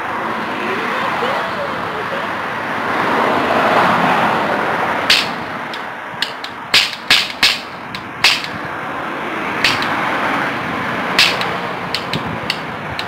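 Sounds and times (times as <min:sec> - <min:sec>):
cap pistol cracks: 0:05.1 - 0:08.6, 0:09.6 - 0:09.9, 0:11.2 - 0:12.6.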